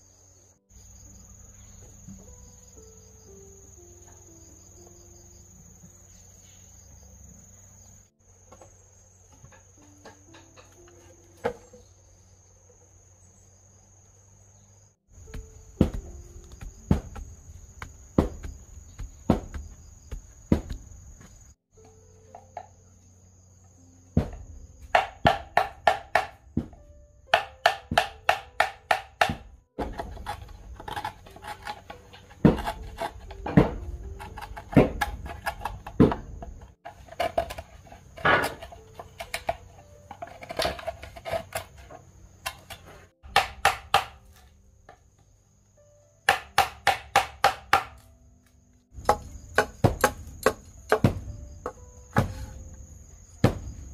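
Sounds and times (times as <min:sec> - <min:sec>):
crickets chirring: 0:00.0 - 0:47.7, 0:48.6 - 0:53.9
hammer knocking chisel into bamboo: 0:15.2 - 0:20.9, 0:24.2 - 0:36.6, 0:42.4 - 0:44.5, 0:46.3 - 0:48.1, 0:48.9 - 0:52.6.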